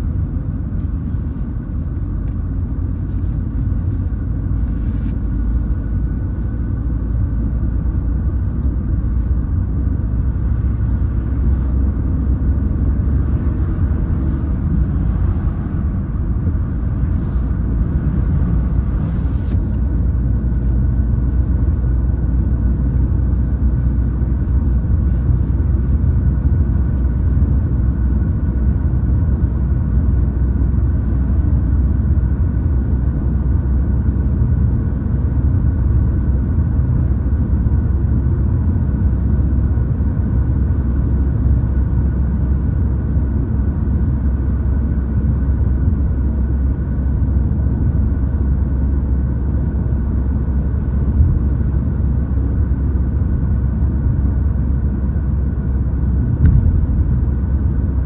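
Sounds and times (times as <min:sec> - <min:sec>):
car cabin road rumble: 0:00.0 - 0:58.0.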